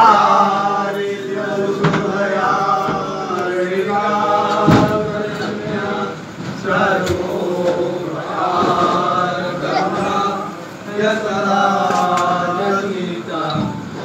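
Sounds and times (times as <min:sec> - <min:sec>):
worshippers chanting: 0:00.0 - 0:14.0
sharp knocks: 0:01.8 - 0:02.2, 0:04.5 - 0:05.8.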